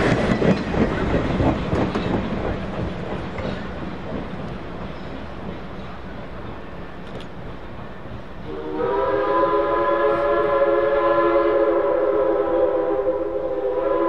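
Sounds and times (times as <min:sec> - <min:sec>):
train rumble: 0:00.0 - 0:14.0
steam locomotive chime whistle: 0:08.4 - 0:14.0.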